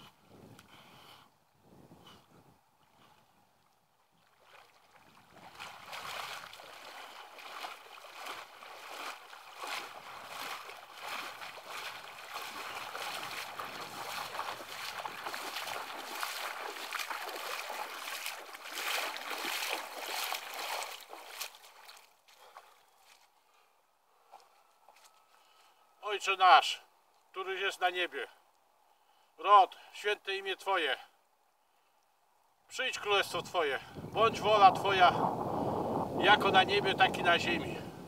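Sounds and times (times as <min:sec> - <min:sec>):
water splashing from wading: 0:03.6 - 0:23.2.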